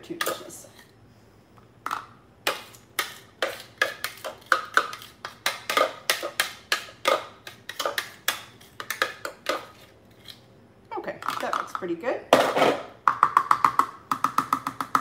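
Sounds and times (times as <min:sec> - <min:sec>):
spoon tapping plastic bowl: 0:13.0 - 0:15.0.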